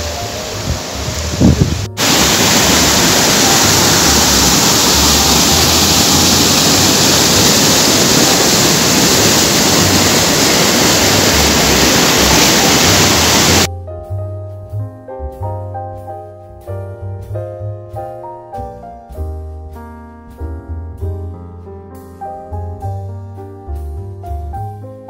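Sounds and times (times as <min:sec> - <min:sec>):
water rushing over rocks: 0:00.0 - 0:13.7.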